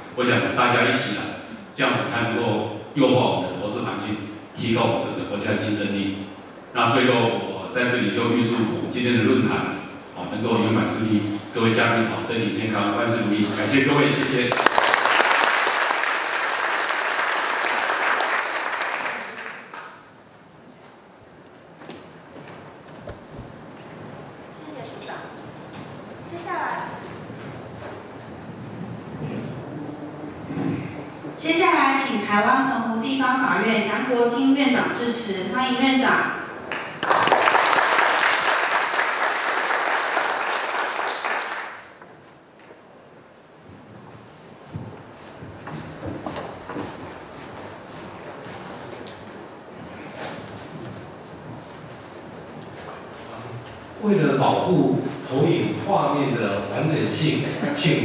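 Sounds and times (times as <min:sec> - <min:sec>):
audience applauding: 0:14.2 - 0:20.2, 0:36.7 - 0:42.1.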